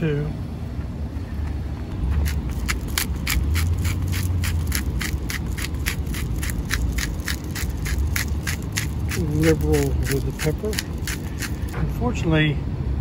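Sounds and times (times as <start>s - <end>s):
pepper mill grinding: 2.2s - 11.8s.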